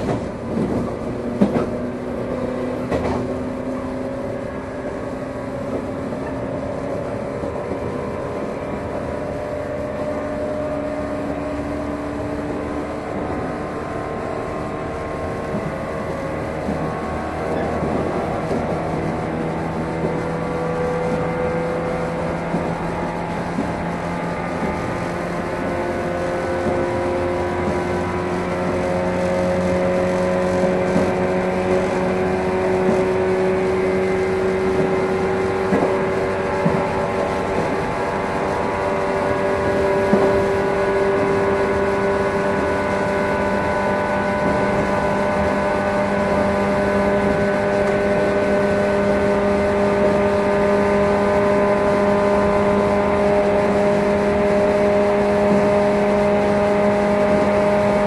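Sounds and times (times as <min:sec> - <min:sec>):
train motors whining: 0:00.0 - 0:58.0
wheels rumbling on rail: 0:00.0 - 0:58.0.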